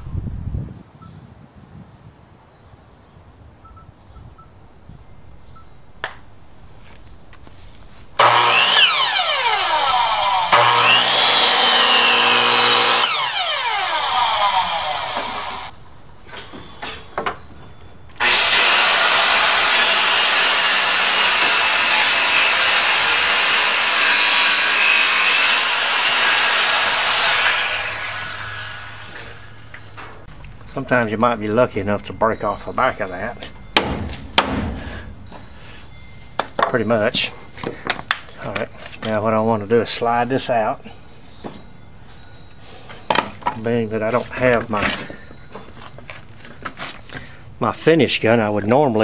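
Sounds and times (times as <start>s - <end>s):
electric miter saw cutting wood: 8.2s - 15.7s, 18.2s - 29.8s.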